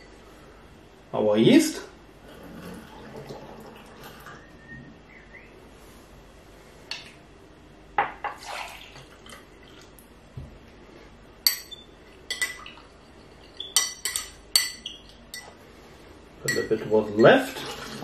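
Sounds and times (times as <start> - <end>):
spoon clinking on glass: 11.5 - 12.7, 13.4 - 15.6, 16.5 - 17.3.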